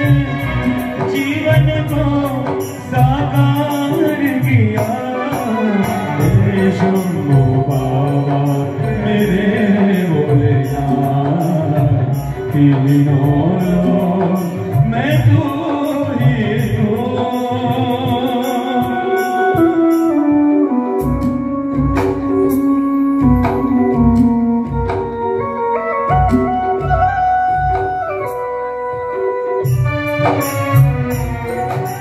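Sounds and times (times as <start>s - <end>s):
man singing: 0.0s - 20.3s
devotional music over loudspeakers: 0.0s - 32.0s.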